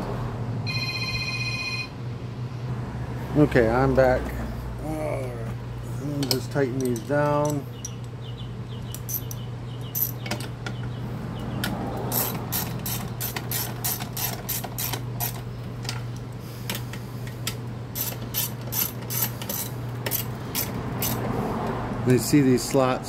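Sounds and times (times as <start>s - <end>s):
socket ratchet clicking: 18.0s - 21.2s.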